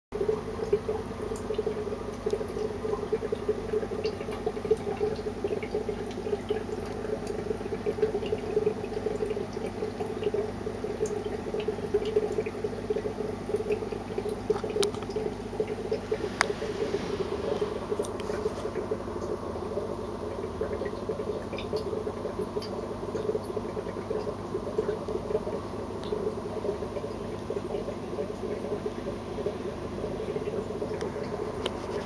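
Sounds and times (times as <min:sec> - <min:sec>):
bubbling water: 0:00.2 - 0:32.0
low hum: 0:15.6 - 0:20.9.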